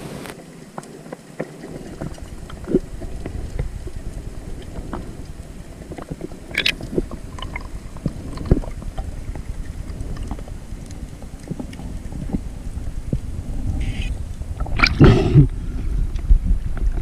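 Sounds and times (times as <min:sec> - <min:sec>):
sharp crackle: 0:00.0 - 0:17.0
underwater rumble of moving water: 0:00.0 - 0:17.0
clicks and pops: 0:06.5 - 0:08.8.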